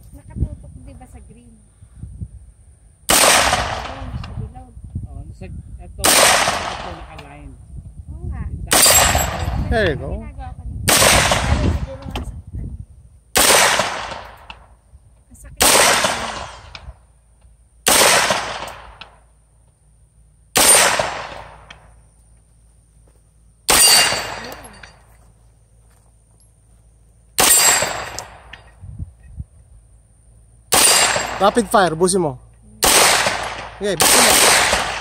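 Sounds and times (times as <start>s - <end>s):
carbine gunshots with echo: 3.1s - 4.3s, 6.0s - 7.2s, 8.7s - 9.7s, 10.9s - 12.0s, 13.3s - 14.7s, 15.6s - 16.9s, 17.8s - 19.2s, 20.5s - 21.9s, 23.7s - 24.8s, 27.4s - 28.6s, 30.7s - 32.1s, 32.8s - 35.0s.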